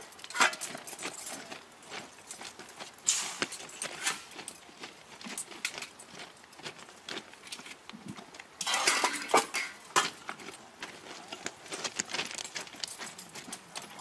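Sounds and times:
metal tools clinking: 0:00.0 - 0:01.6
footsteps crunching on ballast: 0:00.0 - 0:14.0
rough crunching and scraping: 0:00.0 - 0:14.0.

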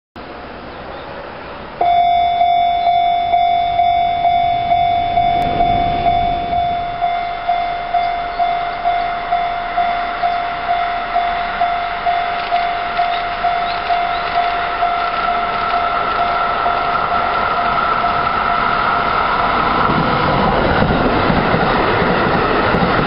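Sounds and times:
level-crossing warning bell: 0:01.8 - 0:23.0.

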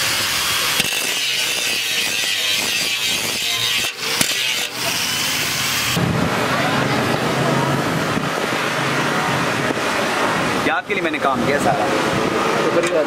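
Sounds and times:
angle grinder grinding metal: 0:00.0 - 0:06.0.

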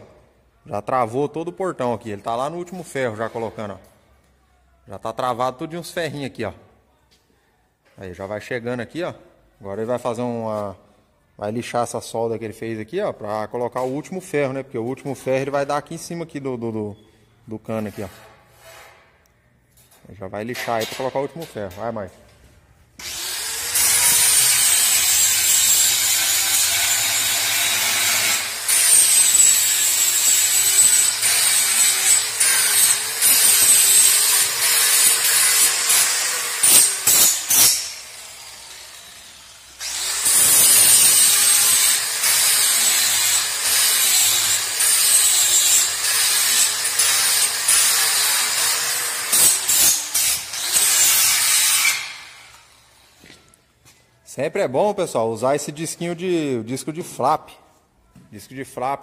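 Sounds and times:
angle grinder sanding steel: 0:23.0 - 0:52.0.

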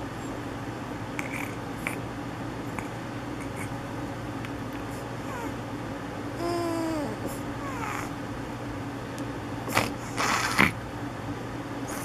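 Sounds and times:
steady low hum: 0:00.0 - 0:12.0
baby snoring: 0:05.2 - 0:05.6, 0:06.4 - 0:08.1, 0:09.7 - 0:10.8.

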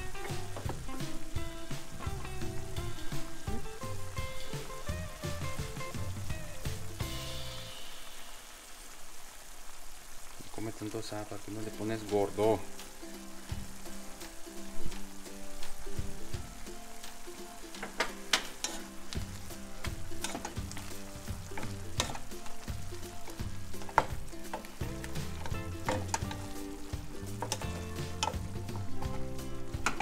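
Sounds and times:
spatula knocking and scraping pan: 0:00.0 - 0:06.9, 0:17.8 - 0:30.0
vegetables sizzling in a frying pan: 0:00.0 - 0:30.0.

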